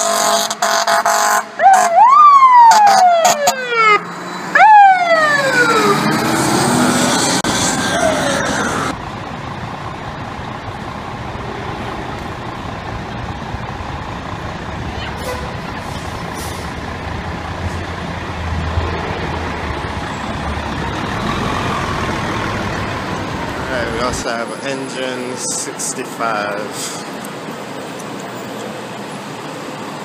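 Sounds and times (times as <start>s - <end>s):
fire engine horn blaring: 0.0s - 8.9s, 14.8s - 16.7s
street traffic: 0.0s - 30.0s
truck engine rumble: 0.0s - 30.0s
siren winding up and down: 1.6s - 9.0s.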